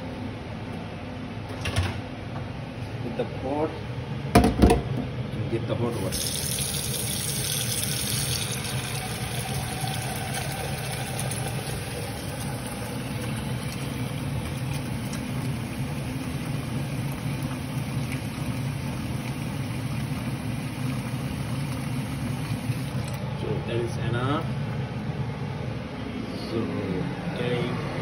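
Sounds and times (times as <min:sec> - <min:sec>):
tap water running into steel pot: 0:06.0 - 0:23.2.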